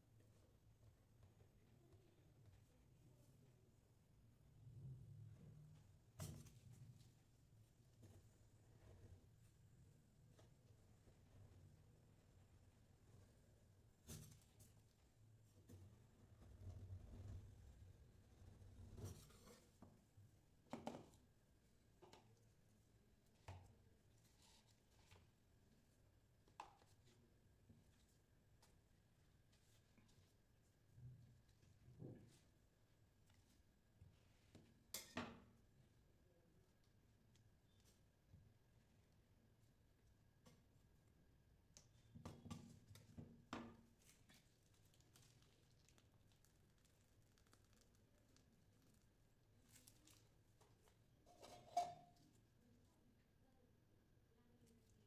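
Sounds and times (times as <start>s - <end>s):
soft taps and scrapes: 18.8s - 20.1s, 49.6s - 52.4s.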